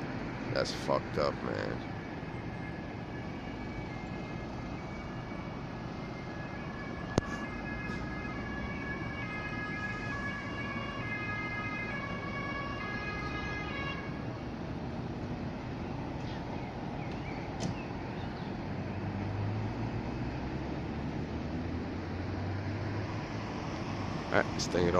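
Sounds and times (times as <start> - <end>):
two-tone emergency siren: 0.2 - 16.0.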